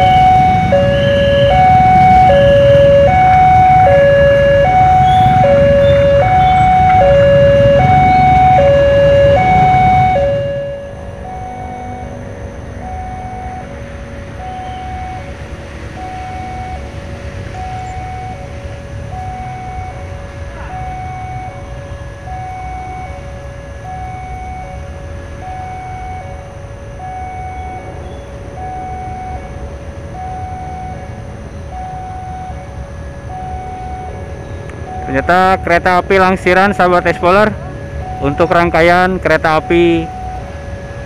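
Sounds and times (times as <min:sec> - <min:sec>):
distant diesel train rumble: 0:00.0 - 0:41.0
level crossing alarm tones: 0:00.0 - 0:41.0.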